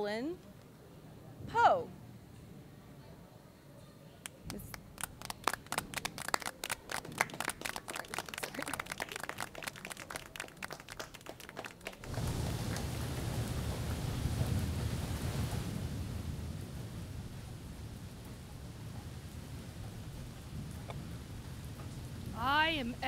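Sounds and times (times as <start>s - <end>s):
audience applauding: 4.3s - 13.3s
rain and thunder: 12.0s - 23.0s.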